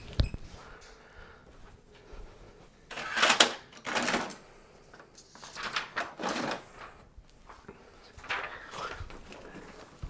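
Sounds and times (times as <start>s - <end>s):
paper rustling and scraping: 5.2s - 10.0s.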